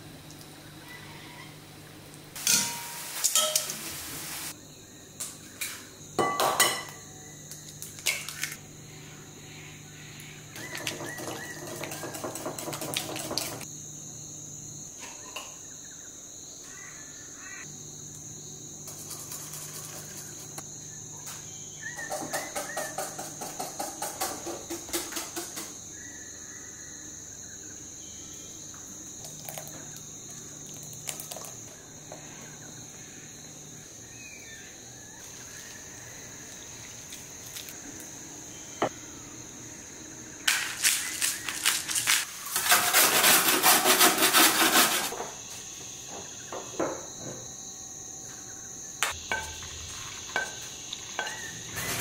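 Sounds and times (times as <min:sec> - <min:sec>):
insects droning: 0:00.0 - 0:52.0
sharp knocks and clatters: 0:10.7 - 0:13.7, 0:22.0 - 0:25.8.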